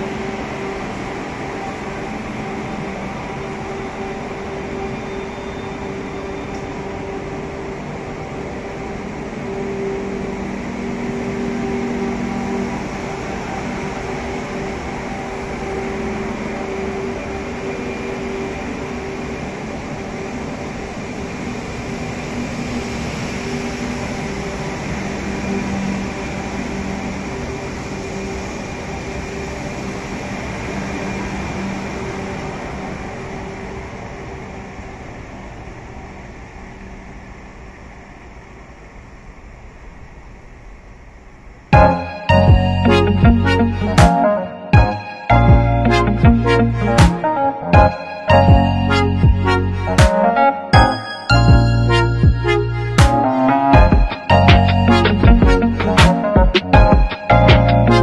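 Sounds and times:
electric train motors humming: 0:00.0 - 0:50.0.

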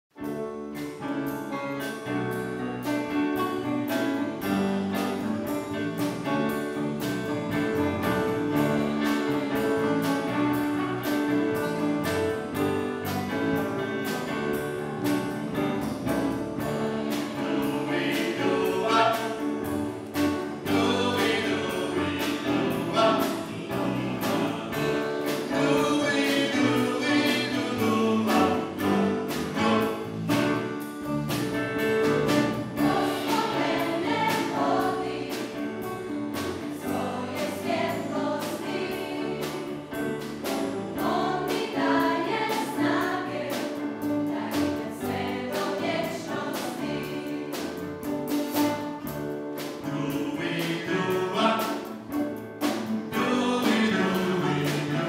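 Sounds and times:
mixed choir singing gospel: 0:03.9 - 0:49.0, 0:49.6 - 0:55.0
accompaniment with steady beat: 0:04.6 - 0:45.7.

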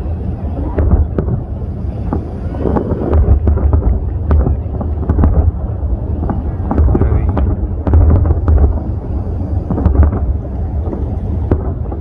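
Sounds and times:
low rumble: 0:00.0 - 0:12.0
wind buffeting microphone: 0:00.0 - 0:12.0
firework shells bursting: 0:00.6 - 0:12.0.

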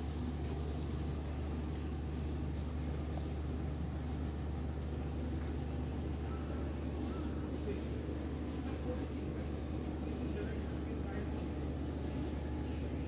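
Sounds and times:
engine humming steadily: 0:00.0 - 0:13.0.

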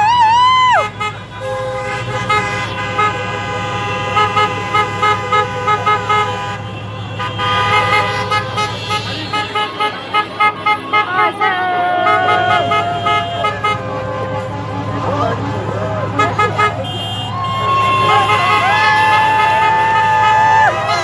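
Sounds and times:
traffic noise: 0:00.0 - 0:21.0
vehicle horns honking: 0:00.5 - 0:21.0.

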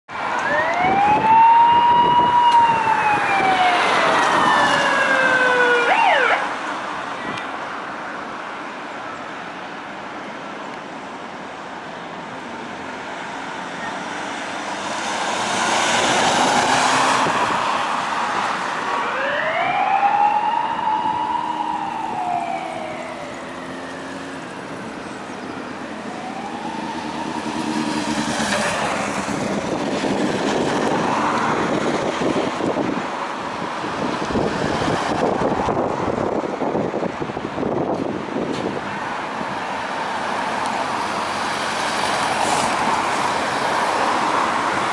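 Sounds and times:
traffic noise: 0:00.1 - 0:44.9
car passing: 0:00.2 - 0:07.0, 0:14.0 - 0:32.9
police siren wailing: 0:00.4 - 0:06.6, 0:18.6 - 0:24.7, 0:25.6 - 0:30.2.

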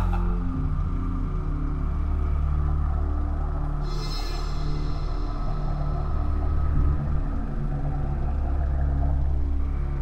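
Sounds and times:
dark film score music: 0:00.0 - 0:10.0.

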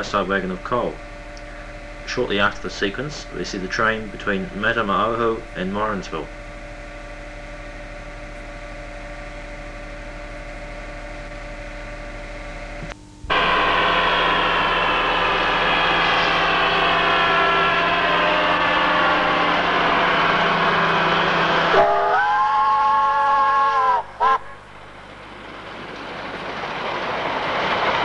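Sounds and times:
falling pitched tones: 0:13.3 - 0:24.9
steam train approaching: 0:13.3 - 0:28.0.

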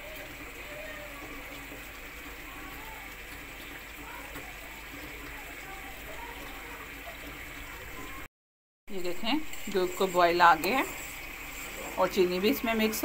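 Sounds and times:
stove hissing: 0:09.0 - 0:13.0.

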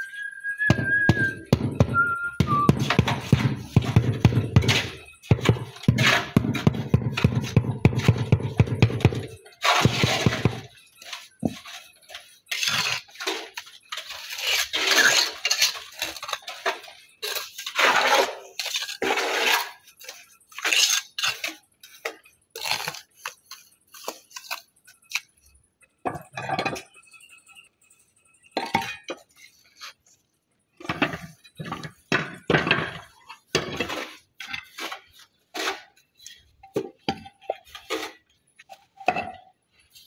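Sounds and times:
trowel scraping stone: 0:04.6 - 0:08.2, 0:09.2 - 0:24.7, 0:33.0 - 0:38.3.

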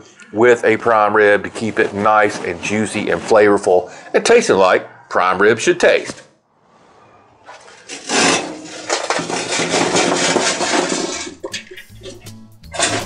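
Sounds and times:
charcoal clattering onto metal pan: 0:07.8 - 0:13.0.

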